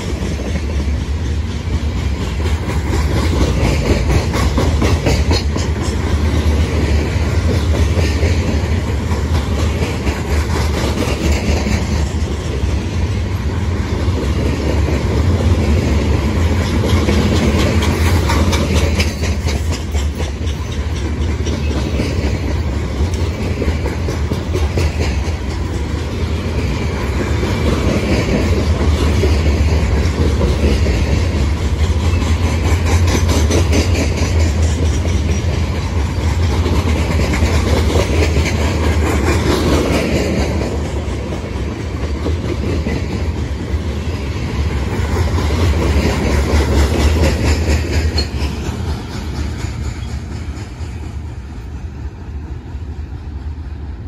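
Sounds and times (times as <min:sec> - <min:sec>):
wheels clicking over rail joints: 0:00.0 - 0:52.6
freight train rumbling past: 0:00.0 - 0:54.0.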